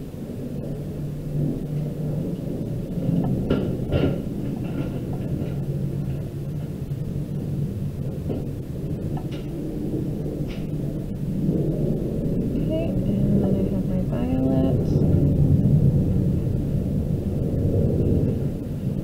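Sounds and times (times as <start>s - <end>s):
low rumble with hum: 0.0s - 19.0s.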